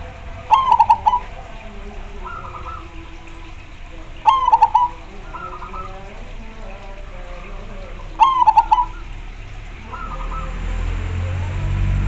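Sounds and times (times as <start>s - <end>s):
faint dove coos: 0.0s - 3.4s, 4.2s - 7.0s, 7.6s - 9.1s, 9.8s - 10.8s
dove staccato cooing: 0.0s - 11.6s.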